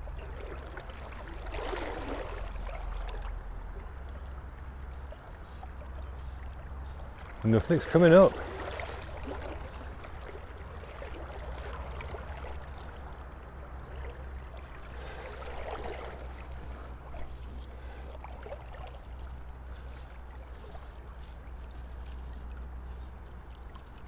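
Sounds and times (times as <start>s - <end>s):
river water rushing: 0.0s - 3.7s, 6.7s - 13.3s, 13.9s - 19.7s
water lapping around legs: 0.0s - 24.0s.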